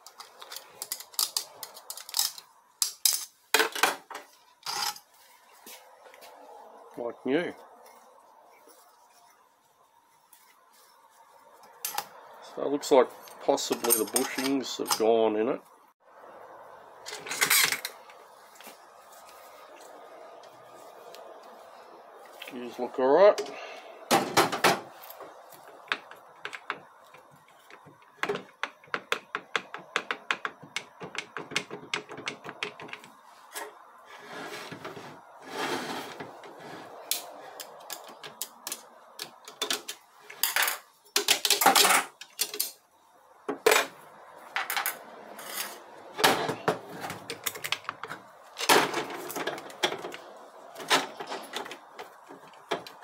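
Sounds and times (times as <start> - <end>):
metal clutch plates clinking: 13.4 - 15.1.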